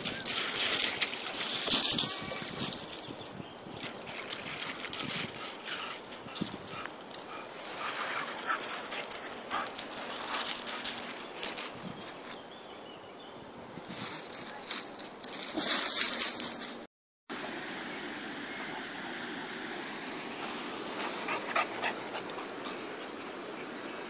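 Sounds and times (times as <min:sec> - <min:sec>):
dog paws crunching on gravel: 0:00.0 - 0:12.5, 0:13.8 - 0:16.9.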